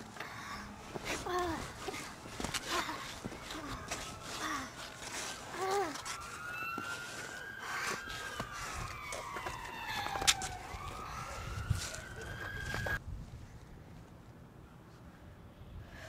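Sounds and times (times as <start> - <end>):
siren wailing: 2.6 - 13.0.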